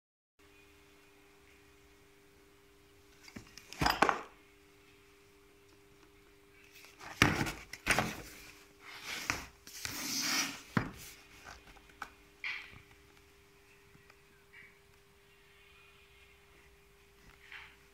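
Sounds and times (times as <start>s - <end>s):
faint steady hum: 0.4s - 17.9s
cardboard box scraping and rustling: 7.1s - 11.6s.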